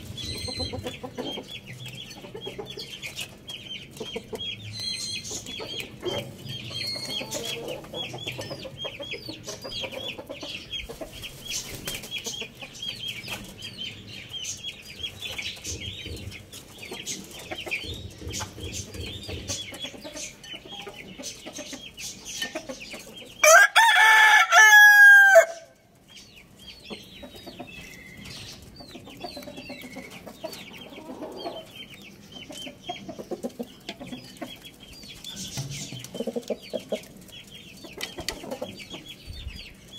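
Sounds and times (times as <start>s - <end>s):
rooster crowing: 23.4s - 25.7s
soft low chicken sounds: 24.3s - 39.9s.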